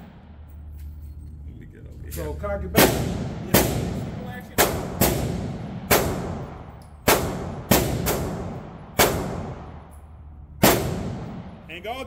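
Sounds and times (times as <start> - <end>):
gunshots with echo: 2.8 - 9.9, 10.6 - 11.7.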